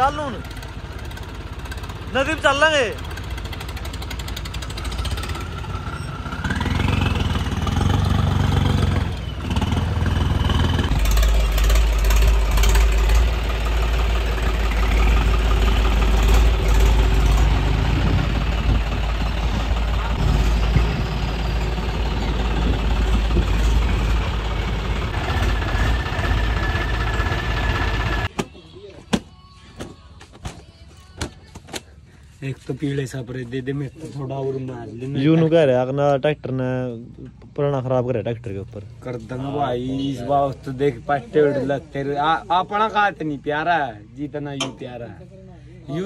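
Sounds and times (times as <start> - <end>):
tractor engine running: 0.0 - 28.4.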